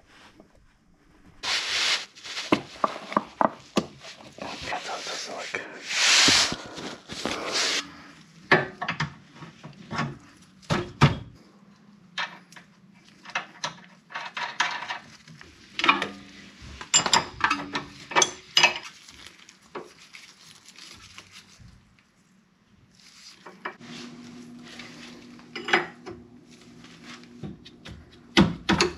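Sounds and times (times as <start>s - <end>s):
rustling scrape: 0.0s - 8.2s, 22.9s - 25.5s.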